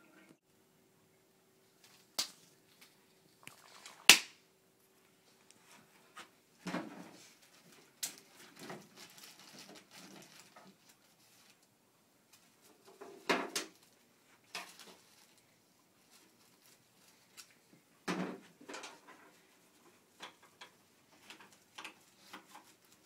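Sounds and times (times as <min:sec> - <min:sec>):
faint steady hum: 0:00.0 - 0:23.0
sharp snaps: 0:02.1 - 0:02.5, 0:04.1 - 0:04.4
plastic bag crinkling: 0:07.2 - 0:11.7, 0:13.7 - 0:17.6.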